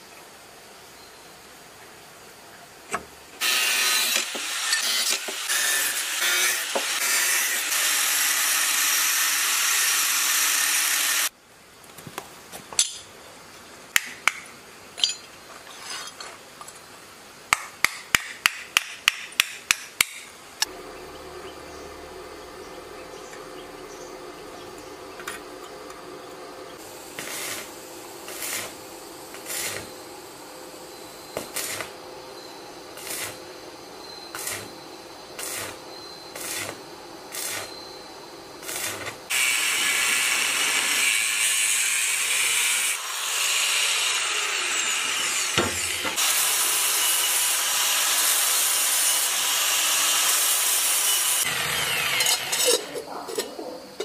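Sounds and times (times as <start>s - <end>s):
arc welding sizzling: 3.3s - 11.4s, 26.2s - 52.8s.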